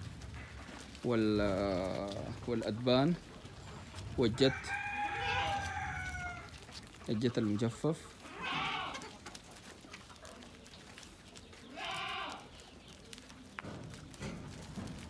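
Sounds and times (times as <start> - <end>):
goat bleating: 8.2 - 9.2, 11.7 - 12.5.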